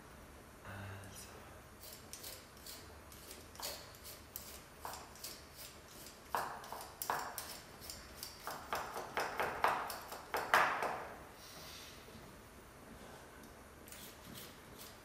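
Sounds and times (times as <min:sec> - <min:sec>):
vegetable peeler scraping: 0:01.8 - 0:10.3, 0:13.9 - 0:15.0.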